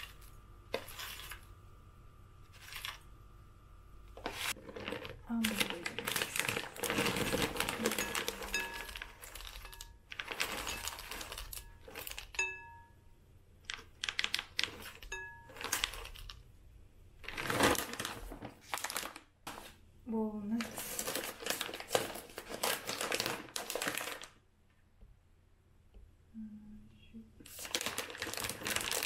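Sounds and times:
dry ingredients rattling: 0:04.2 - 0:12.8, 0:13.6 - 0:16.4, 0:20.6 - 0:24.4, 0:27.5 - 0:29.0.

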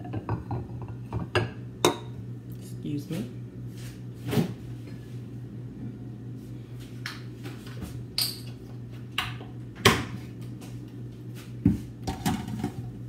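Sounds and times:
low room hum: 0:00.0 - 0:13.0
kitchen items knocking and clinking: 0:12.0 - 0:12.8.

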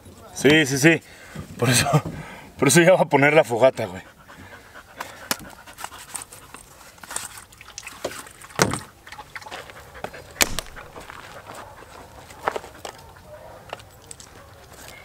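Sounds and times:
loud thumps: 0:10.4 - 0:11.1.

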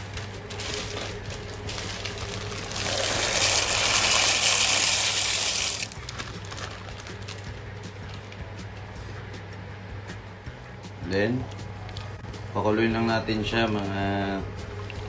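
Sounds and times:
water boiling and bubbling: 0:00.4 - 0:07.3, 0:14.4 - 0:15.0.

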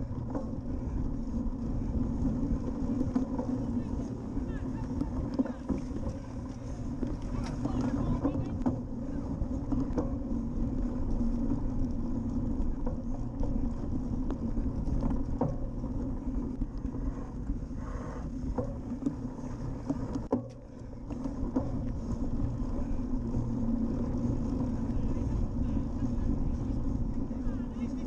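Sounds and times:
bike knocks and rattles: 0:00.0 - 0:17.6, 0:18.3 - 0:28.0
knobby tyres rolling: 0:00.0 - 0:28.0
wind on microphone: 0:00.0 - 0:28.0.

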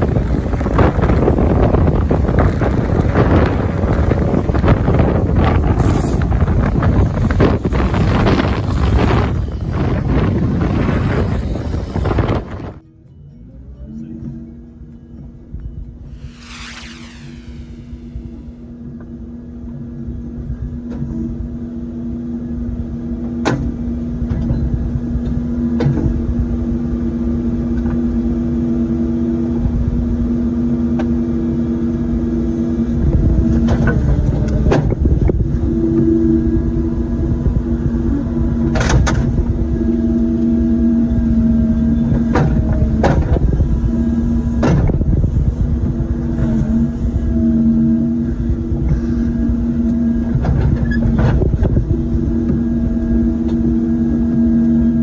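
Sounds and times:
excavator engine and hydraulic drone: 0:00.0 - 0:55.0.

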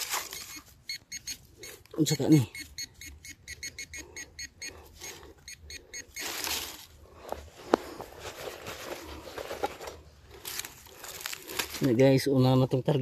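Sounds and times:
rustling and scraping in soil: 0:00.0 - 0:00.8, 0:06.1 - 0:13.0
metal detector short beeps: 0:00.2 - 0:06.4.

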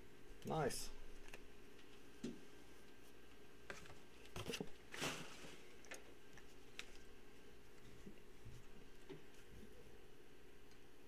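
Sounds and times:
cardboard packaging rustle: 0:03.7 - 0:05.9.

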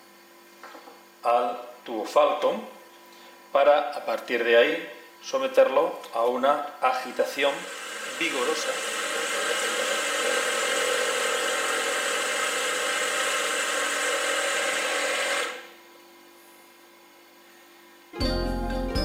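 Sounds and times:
vortex mixer whirring: 0:06.8 - 0:15.8.

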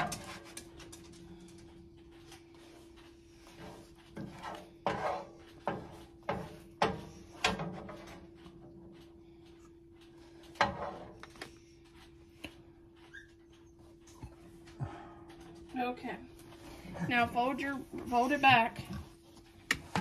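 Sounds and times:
kitchen knocks and clatters: 0:00.0 - 0:01.2, 0:04.0 - 0:08.4, 0:10.6 - 0:11.4
steady low hum: 0:00.0 - 0:20.0.

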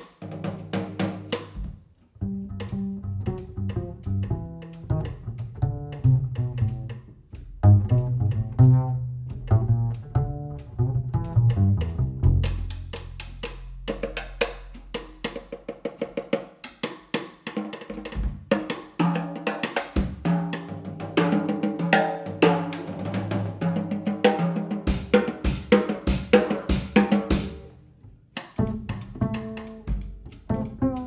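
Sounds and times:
jazz drum solo: 0:00.0 - 0:27.7, 0:28.3 - 0:31.0
plucked double bass: 0:00.4 - 0:15.4, 0:28.4 - 0:31.0.

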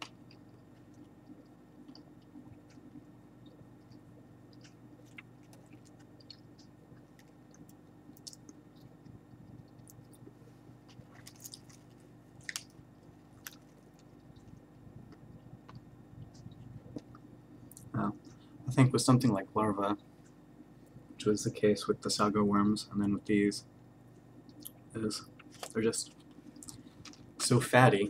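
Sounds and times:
faint crunchy chewing: 0:00.0 - 0:18.6, 0:24.1 - 0:27.5.

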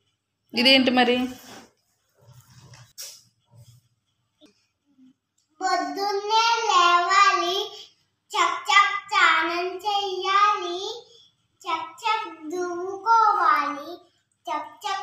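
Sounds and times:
child singing: 0:05.6 - 0:07.8, 0:08.4 - 0:11.0, 0:11.7 - 0:15.0.

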